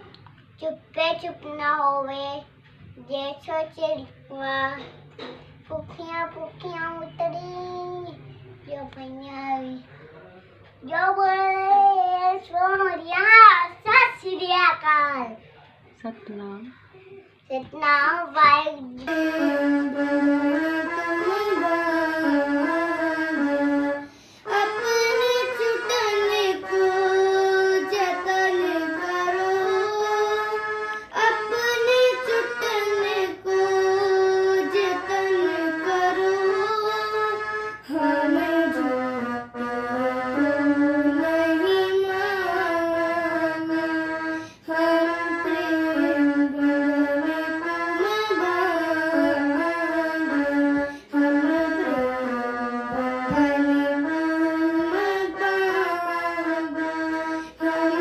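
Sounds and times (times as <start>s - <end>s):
electronic keyboard slow melody: 19.1s - 58.0s.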